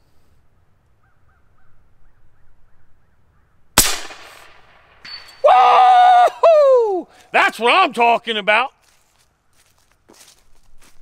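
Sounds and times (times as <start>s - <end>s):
air rifle shot: 3.8s - 5.0s
faint ring of bullet on steel: 4.2s - 5.5s.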